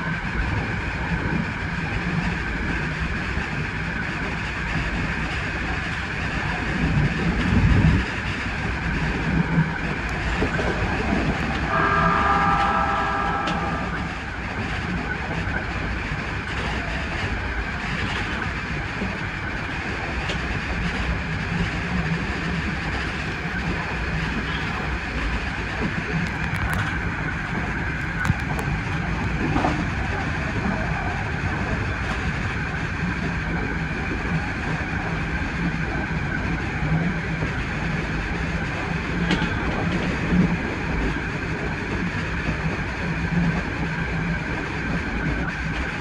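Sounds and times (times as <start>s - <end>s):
train wheels rumbling on rails: 0.0s - 46.0s
multi-note tone: 11.6s - 14.4s.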